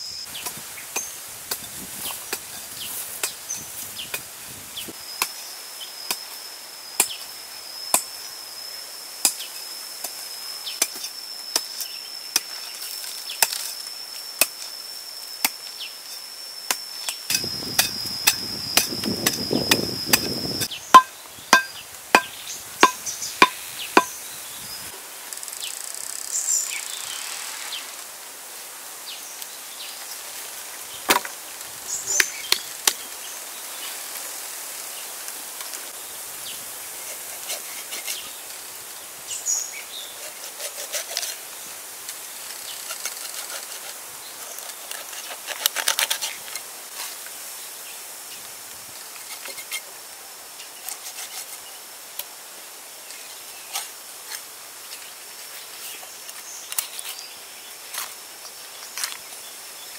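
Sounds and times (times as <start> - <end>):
insect buzzing: 4.6 - 28.1
sharp chopping strikes: 17.3 - 24.1
ringing strikes: 20.9 - 24.1.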